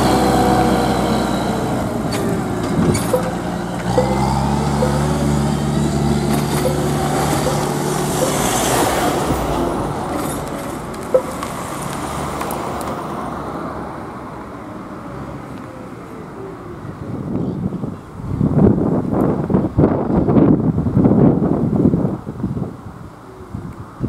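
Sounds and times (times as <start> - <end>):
diesel engine running: 0.0 - 13.1.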